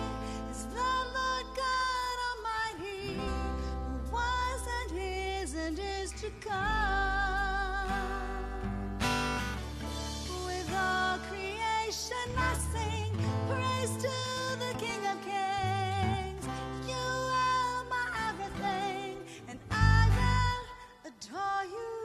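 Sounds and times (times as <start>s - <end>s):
bass notes: 0.0s - 11.6s, 12.2s - 14.5s, 15.6s - 18.2s, 19.6s - 20.7s
acoustic and electric guitars: 0.0s - 22.0s
woman singing: 0.0s - 22.0s.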